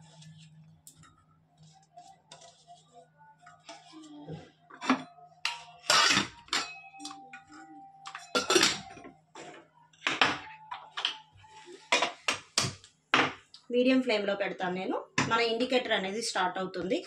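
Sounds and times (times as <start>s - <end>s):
metal cookware knocking: 8.1s - 9.0s.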